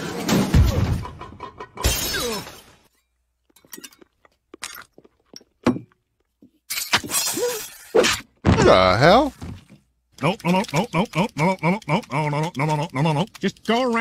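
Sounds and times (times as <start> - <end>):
ceramic vase smashing: 0.5 - 2.9.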